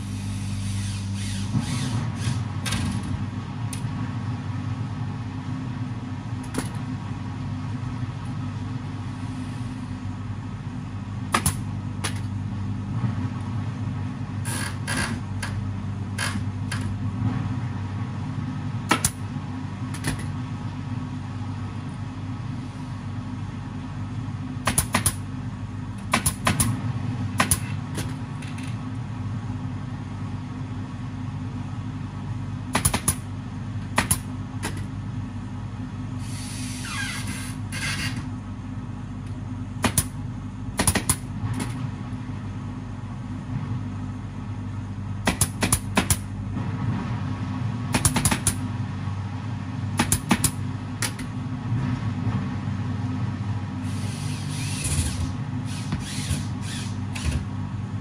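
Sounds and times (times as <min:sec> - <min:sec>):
pneumatic staple gun firing: 0:11.4 - 0:12.3, 0:24.6 - 0:25.2, 0:26.1 - 0:26.7, 0:27.4 - 0:28.1, 0:32.8 - 0:33.2, 0:39.8 - 0:40.1, 0:40.8 - 0:41.8, 0:48.0 - 0:48.6, 0:50.0 - 0:51.2, 0:53.8 - 0:57.5
air hiss: 0:36.2 - 0:37.5, 0:53.8 - 0:57.0
low hum: 0:46.2 - 0:48.0, 0:50.6 - 0:58.0.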